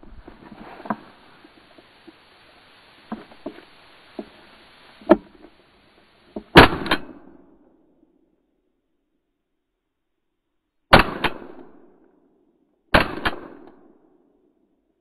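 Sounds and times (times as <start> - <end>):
sharp crack: 0.0 - 7.4, 10.9 - 12.0, 12.9 - 14.0
shotgun firing: 6.6 - 7.2, 10.9 - 11.8, 13.0 - 13.8.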